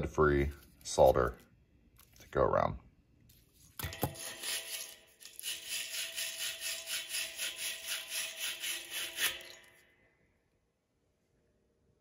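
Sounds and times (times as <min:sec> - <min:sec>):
wire brush scrubbing copper fitting: 0:03.9 - 0:09.6.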